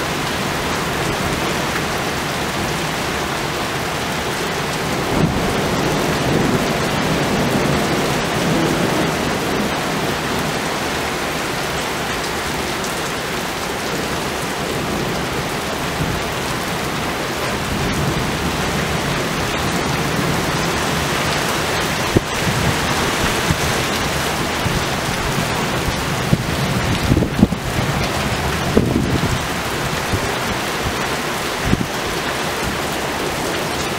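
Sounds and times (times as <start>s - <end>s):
thunder rumbling: 0.0s - 11.1s, 14.0s - 33.9s
rain falling: 0.0s - 33.9s.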